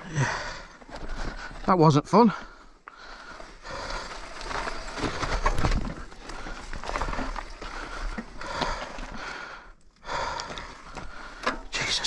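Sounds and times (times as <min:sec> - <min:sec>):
bike clattering over rough ground: 0:00.4 - 0:09.4
tyres crunching over dirt and stones: 0:00.4 - 0:09.6.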